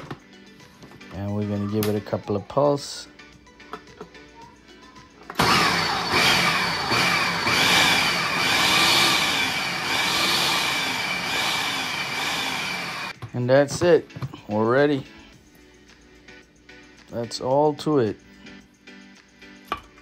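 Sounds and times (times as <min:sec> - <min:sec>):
blender motor whining: 0:05.4 - 0:13.2.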